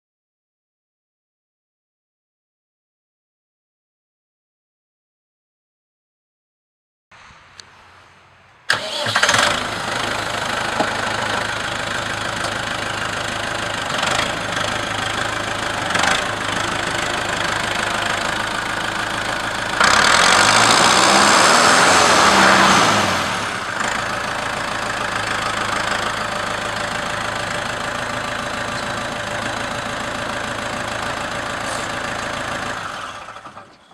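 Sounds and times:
tractor engine idling and revving: 0:07.2 - 0:33.9
tractor diesel engine starting: 0:08.7 - 0:33.9.

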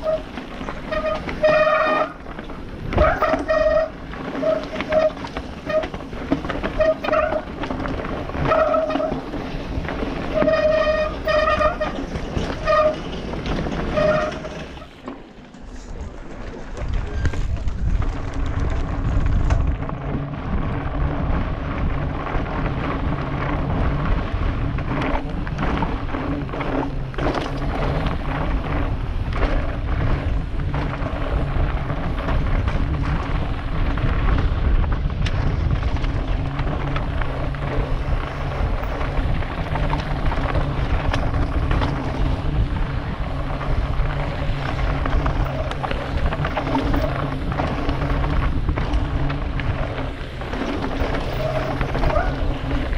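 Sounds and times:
bike knocking and rattling: 0:00.0 - 0:52.9
tyres rolling over stones: 0:00.0 - 0:52.9
wind rushing over microphone: 0:15.7 - 0:52.9.

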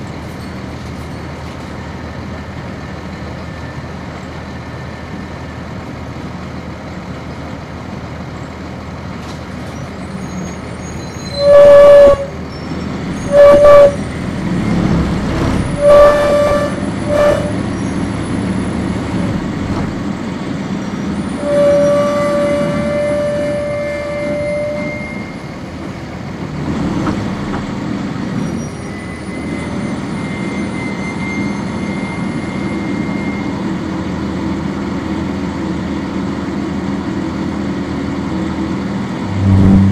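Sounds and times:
bus diesel engine: 0:00.0 - 0:39.9
road noise: 0:00.0 - 0:39.9
bus horn tooting: 0:10.4 - 0:18.5, 0:21.2 - 0:25.6, 0:39.3 - 0:39.9.

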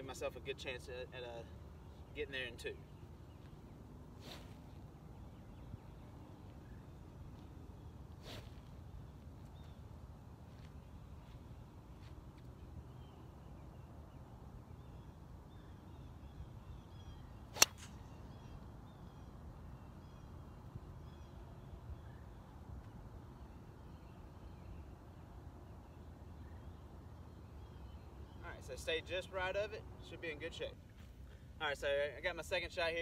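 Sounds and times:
faint outdoor background: 0:00.0 - 0:33.0
golf ball struck by club: 0:17.5 - 0:18.2.

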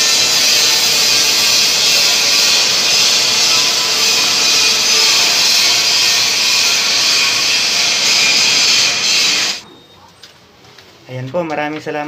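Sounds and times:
loud steady hissing: 0:00.0 - 0:09.6.

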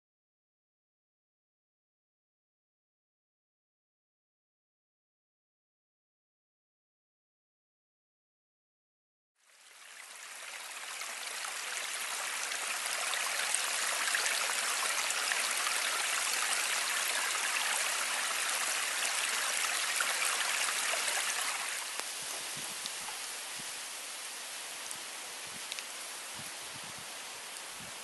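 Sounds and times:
stream of water rushing: 0:09.4 - 0:28.0.

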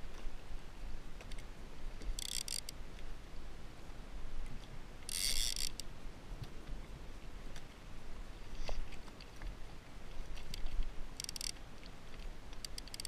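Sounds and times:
fishing reel drag buzzing: 0:02.2 - 0:02.7, 0:05.1 - 0:05.9, 0:11.2 - 0:11.6, 0:12.6 - 0:13.0.

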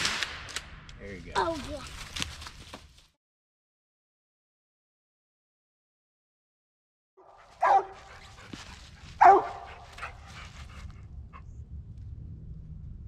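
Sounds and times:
dog barking: 0:07.2 - 0:08.5, 0:09.2 - 0:10.2.

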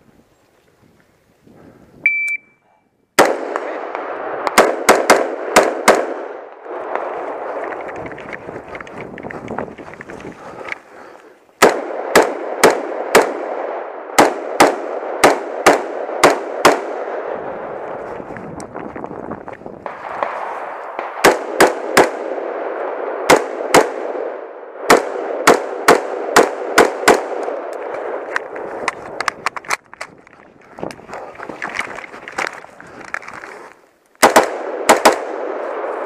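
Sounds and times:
start signal beep: 0:02.0 - 0:02.6
pistol gunshots: 0:03.2 - 0:07.6, 0:11.6 - 0:17.3, 0:19.9 - 0:28.2, 0:34.2 - 0:35.9.

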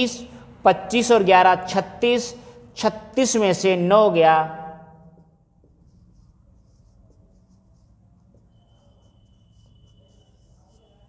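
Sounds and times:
marker scratching on whiteboard: 0:05.4 - 0:11.0.

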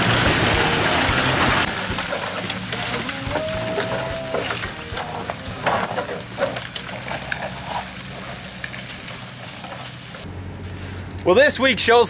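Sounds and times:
truck engine hum: 0:00.0 - 0:12.0
crackling and rustling of grass: 0:00.4 - 0:11.3.

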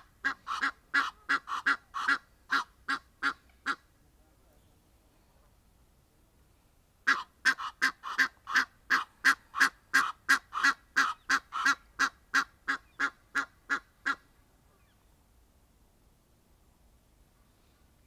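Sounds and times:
goose honking: 0:00.2 - 0:03.8, 0:07.1 - 0:14.2.

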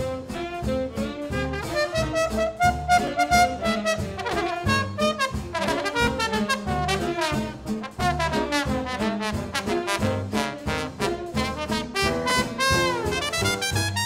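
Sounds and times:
swing big band playing: 0:00.0 - 0:14.0
trumpets and trombones: 0:00.0 - 0:14.0.

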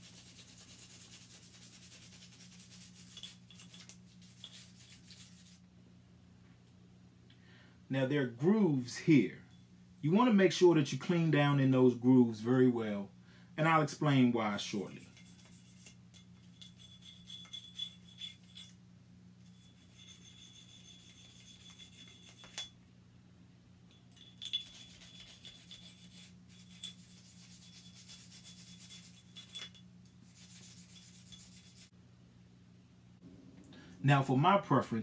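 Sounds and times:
brush scrubbing metal: 0:00.0 - 0:05.6, 0:14.5 - 0:18.8, 0:19.4 - 0:22.7, 0:24.1 - 0:31.9.

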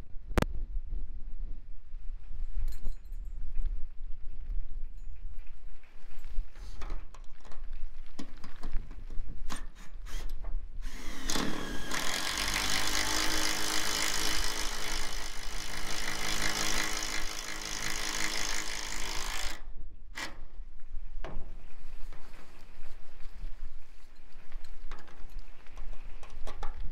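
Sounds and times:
cordless drill driving screw into metal: 0:09.5 - 0:19.6, 0:20.2 - 0:20.5.

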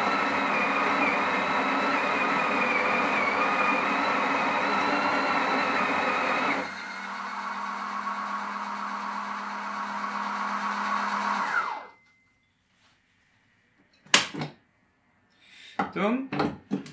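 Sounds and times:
coffee grinder grinding: 0:00.0 - 0:11.9
motor humming: 0:00.0 - 0:11.9.

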